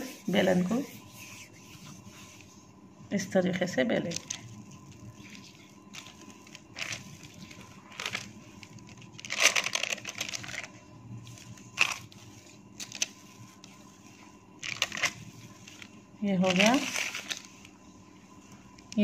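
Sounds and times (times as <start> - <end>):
butter paper rustling: 4.0 - 17.8.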